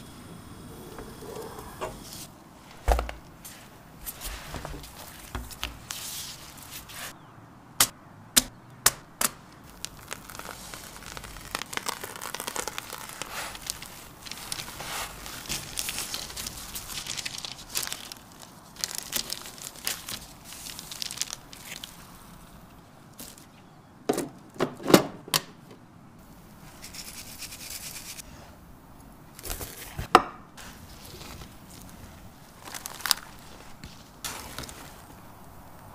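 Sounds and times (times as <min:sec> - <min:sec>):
paper and plastic gloves rustling: 0:01.2 - 0:07.2, 0:09.6 - 0:23.8, 0:29.4 - 0:35.9.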